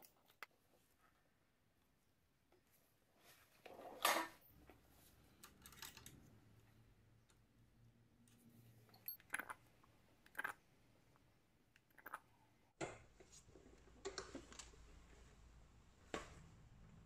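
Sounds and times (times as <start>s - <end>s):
hand tools clicking and clinking: 8.9s - 9.6s.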